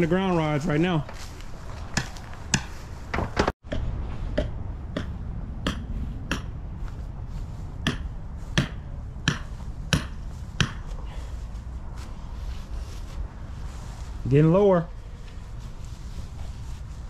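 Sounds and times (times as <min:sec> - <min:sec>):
hammer striking metal rod: 0:04.4 - 0:06.6, 0:07.8 - 0:10.8.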